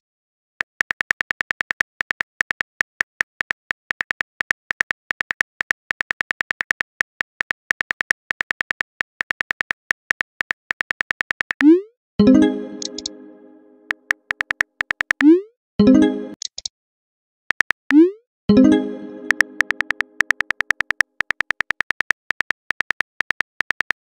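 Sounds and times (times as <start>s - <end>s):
phone keyboard clicks: 19.3s - 24.0s.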